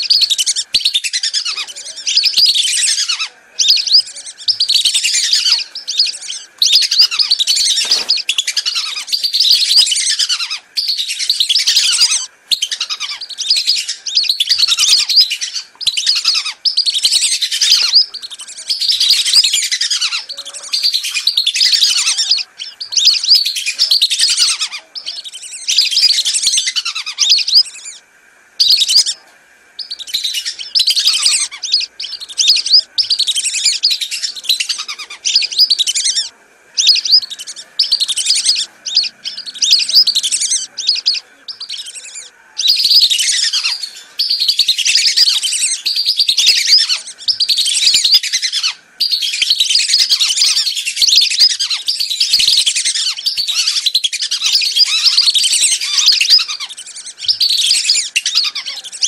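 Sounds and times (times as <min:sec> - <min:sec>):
ducks whistling calls: 0:00.0 - 0:59.0.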